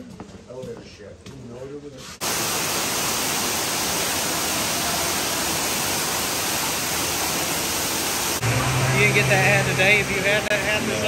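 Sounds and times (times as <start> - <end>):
waterfall pouring into pool: 2.2 - 11.0.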